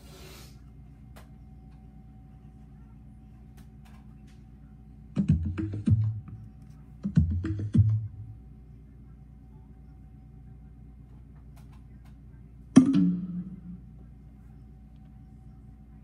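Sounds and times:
bass-heavy percussive music: 0:05.2 - 0:06.4, 0:07.0 - 0:08.3, 0:12.8 - 0:13.8.

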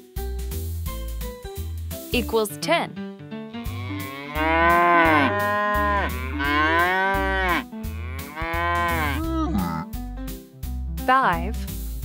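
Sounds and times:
children's music with beat: 0:00.0 - 0:02.8
cartoon cows mooing: 0:03.6 - 0:10.0.

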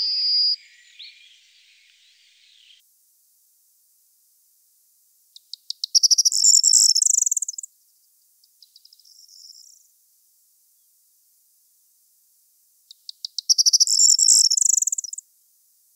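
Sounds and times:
bird singing rattling trill: 0:00.0 - 0:02.8, 0:05.4 - 0:07.7, 0:12.9 - 0:15.2.

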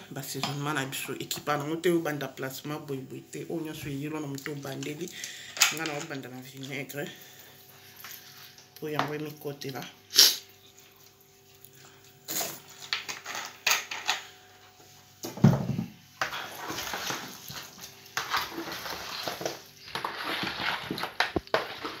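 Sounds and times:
wet squishing of chicken mixing: 0:05.9 - 0:12.8, 0:16.1 - 0:22.0.

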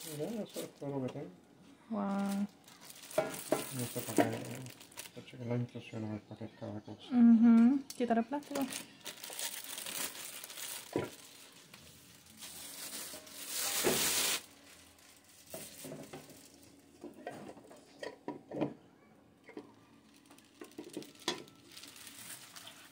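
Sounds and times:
plastic wrapping crinkling: 0:00.0 - 0:01.1, 0:02.0 - 0:05.2, 0:08.4 - 0:17.0, 0:19.6 - 0:22.9.

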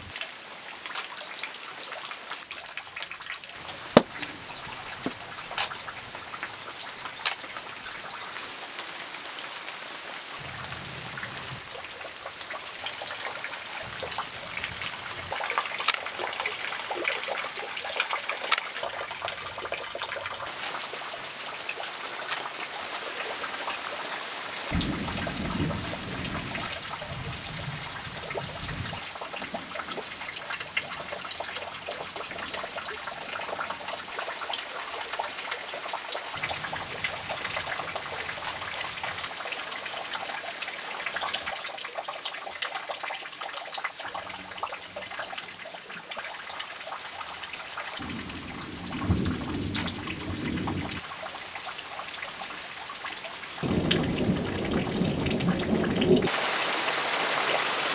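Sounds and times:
raindrops ticking on surfaces: 0:00.0 - 0:57.9
steady rain falling: 0:00.0 - 0:57.9
thunder rumble: 0:24.7 - 0:29.6, 0:48.0 - 0:51.1, 0:53.6 - 0:56.4.

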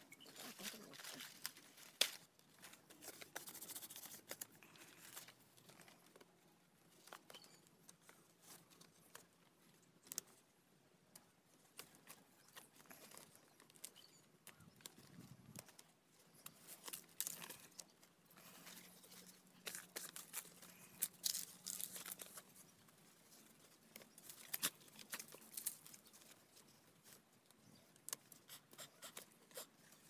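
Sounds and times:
leaves rustling and crinkling: 0:00.0 - 0:06.2, 0:11.6 - 0:30.0
small clicks and snaps: 0:10.0 - 0:10.4.

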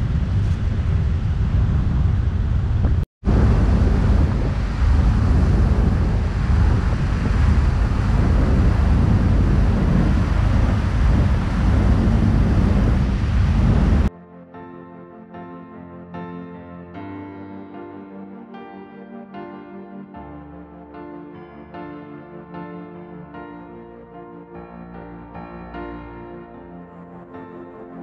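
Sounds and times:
wind rumble on microphone: 0:00.0 - 0:14.1
soft music: 0:14.1 - 0:28.0.

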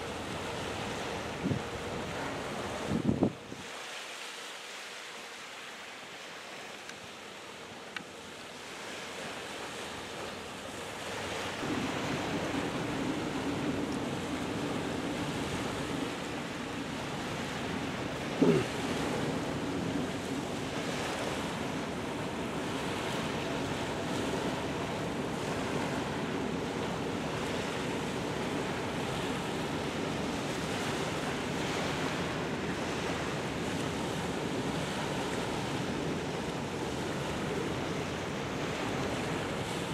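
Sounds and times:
water lapping at shore: 0:00.0 - 0:39.9
wind buffeting microphone: 0:02.4 - 0:03.6.

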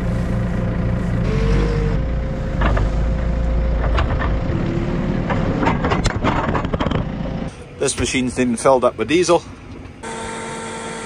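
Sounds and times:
diesel engine droning: 0:00.0 - 0:11.0
short steady tones: 0:01.0 - 0:03.6
knocks and rattles: 0:03.8 - 0:04.5, 0:05.2 - 0:07.2.

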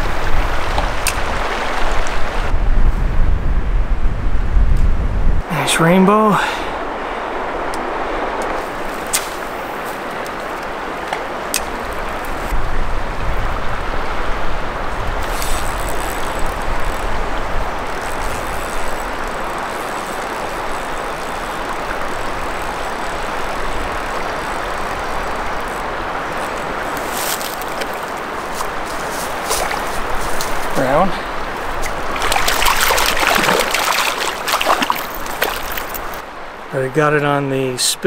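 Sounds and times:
river rushing: 0:00.0 - 0:02.5, 0:05.4 - 0:37.0
wind rumbling on microphone: 0:00.0 - 0:36.7
fish splashing at surface: 0:31.7 - 0:36.2.

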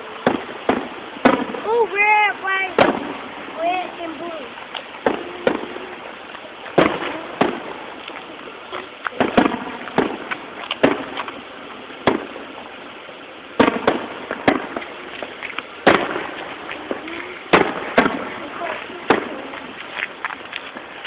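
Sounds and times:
small firework pops: 0:00.2 - 0:01.7, 0:02.8 - 0:03.2, 0:04.7 - 0:11.4, 0:12.0 - 0:12.5, 0:13.6 - 0:20.9
firework shells bursting: 0:00.2 - 0:21.0.

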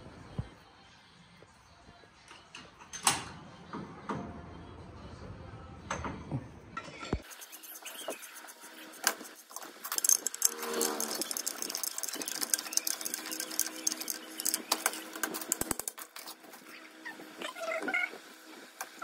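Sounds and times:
pipe wrench clicking and scraping: 0:07.2 - 0:16.4.

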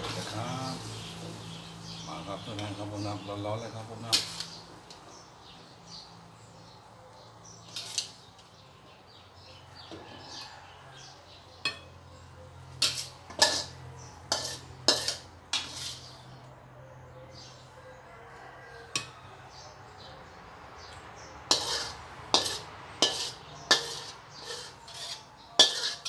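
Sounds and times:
metal spatula scraping wok: 0:00.0 - 0:04.8, 0:07.6 - 0:08.6, 0:09.8 - 0:12.0, 0:12.7 - 0:16.4, 0:18.8 - 0:19.2, 0:20.9 - 0:26.0.

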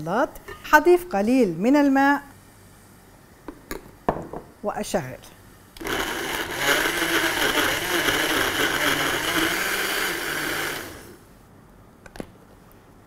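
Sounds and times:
blender running: 0:05.8 - 0:11.2.

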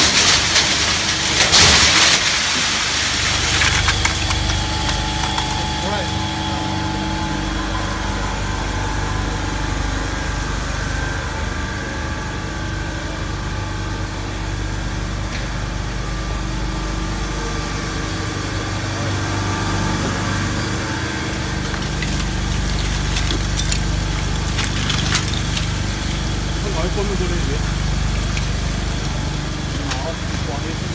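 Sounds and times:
refrigeration compressor humming: 0:00.0 - 0:30.9.

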